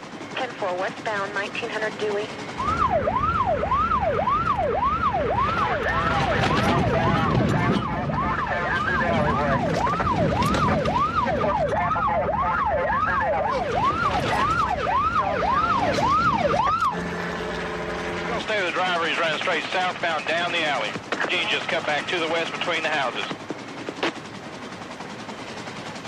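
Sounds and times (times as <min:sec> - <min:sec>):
police siren yelping: 0:00.0 - 0:23.2
vehicles rumbling: 0:01.8 - 0:21.2
second siren: 0:02.5 - 0:19.2.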